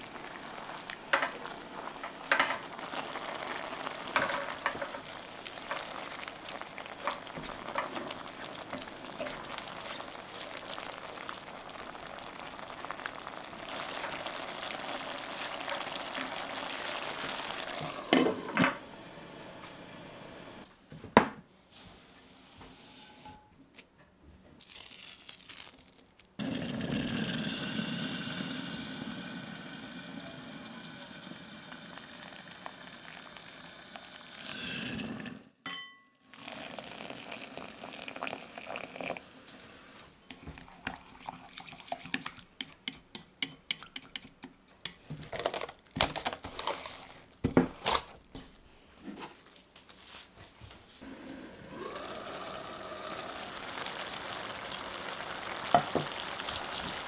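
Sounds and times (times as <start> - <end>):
water pouring into bowl: 0.0 - 18.2, 24.7 - 35.3, 36.3 - 39.2, 40.5 - 42.4, 51.2 - 57.0
pan simmering and bubbling: 0.0 - 20.7, 24.6 - 35.6, 36.3 - 57.0.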